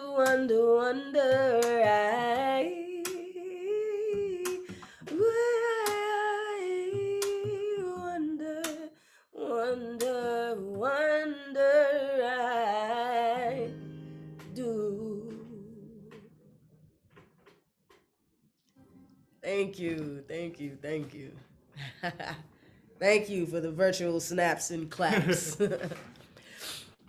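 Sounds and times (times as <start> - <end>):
strummed acoustic guitar: 0.0 - 3.3, 10.0 - 16.4
woman singing: 0.0 - 16.3.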